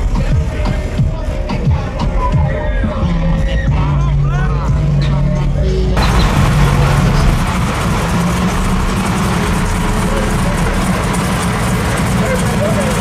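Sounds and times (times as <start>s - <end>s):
car engine idling: 6.0s - 13.0s
rushing noise: 6.0s - 13.0s.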